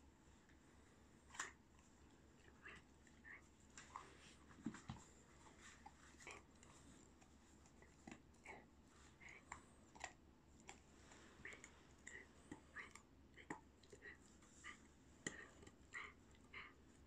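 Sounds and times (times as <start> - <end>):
puppy chewing crunches: 3.8 - 16.7.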